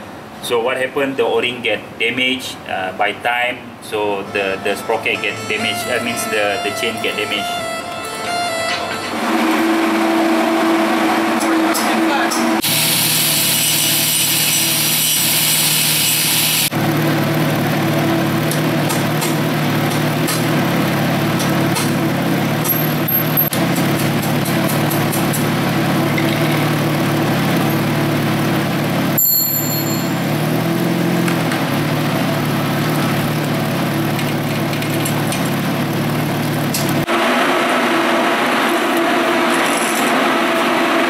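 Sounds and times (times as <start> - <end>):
angle grinder grinding metal: 4.3 - 16.7
steady motor hum: 7.6 - 15.3, 16.3 - 41.0.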